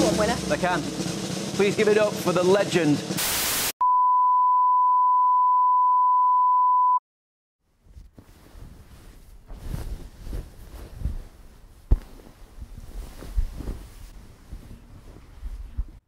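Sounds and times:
steady beep tone: 0:03.8 - 0:07.0
bedsheet fabric rustling: 0:07.6 - 0:16.0
low bumps: 0:07.9 - 0:16.0.

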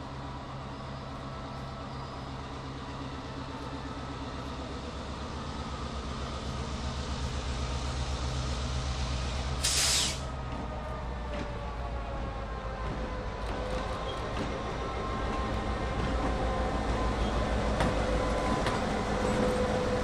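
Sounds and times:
diesel locomotive engine running: 0:00.0 - 0:20.0
loud hiss of air: 0:09.6 - 0:10.3.

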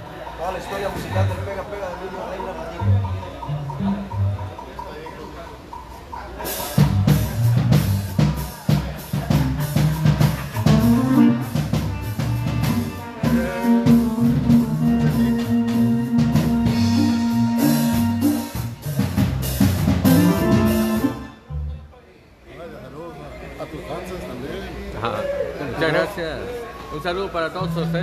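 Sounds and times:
keyboard playing: 0:01.2 - 0:05.9, 0:09.3 - 0:21.9, 0:27.5 - 0:28.0
drum kit beat: 0:02.4 - 0:21.7, 0:27.6 - 0:28.0
bass guitar: 0:02.8 - 0:04.8, 0:06.5 - 0:21.9, 0:27.6 - 0:28.0.

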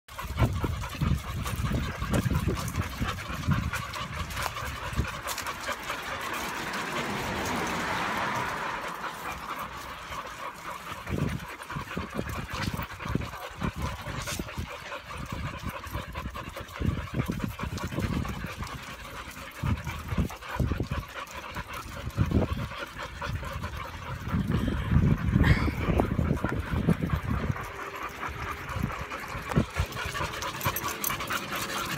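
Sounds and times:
dogs panting: 0:00.1 - 0:31.9.

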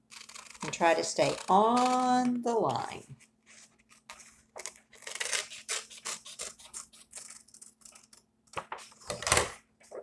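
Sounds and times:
scissors snipping paper: 0:00.0 - 0:03.0, 0:03.9 - 0:08.3.

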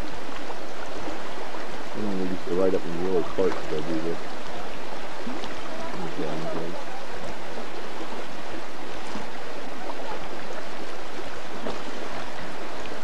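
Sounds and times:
creek water flowing: 0:00.0 - 0:13.0.

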